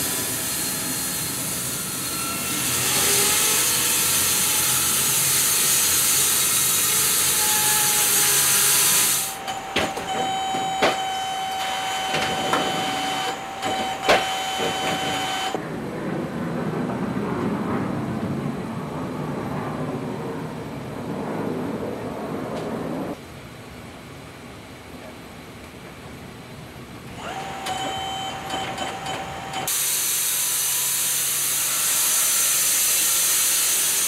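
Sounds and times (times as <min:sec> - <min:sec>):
saw blade hissing through wood: 0:00.0 - 0:09.4, 0:29.7 - 0:34.0
sawmill running rumble: 0:00.0 - 0:15.6, 0:22.5 - 0:34.0
sawmill whining: 0:00.0 - 0:15.6, 0:27.0 - 0:34.0.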